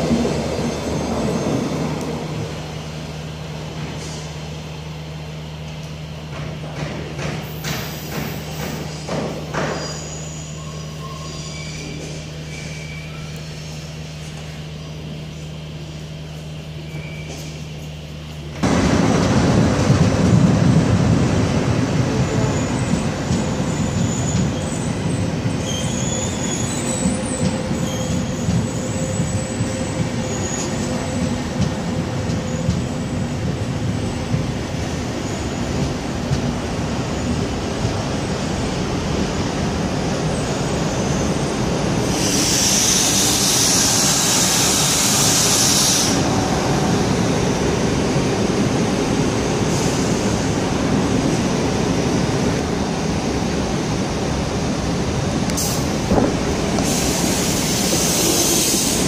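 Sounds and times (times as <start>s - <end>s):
train rumbling on rails: 0.0s - 59.0s
faint wheel squeals: 9.6s - 13.9s, 16.8s - 18.0s, 22.5s - 31.3s
loud high hiss: 42.0s - 46.3s.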